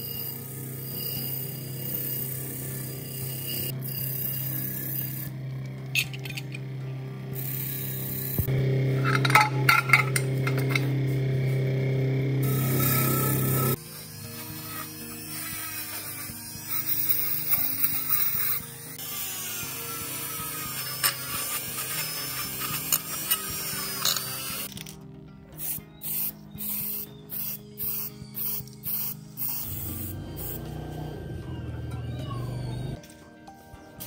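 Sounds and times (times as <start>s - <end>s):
rotary tool grinding metal: 0.0s - 6.7s, 7.3s - 11.0s, 12.4s - 25.0s, 25.6s - 33.0s
background music: 0.0s - 34.0s
aerosol spray can hissing: 25.6s - 30.6s.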